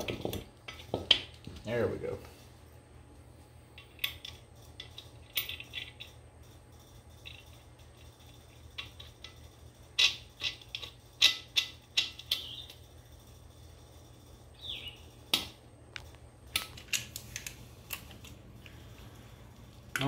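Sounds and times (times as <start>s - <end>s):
metal nuts and washers clinking: 3.7s - 12.9s.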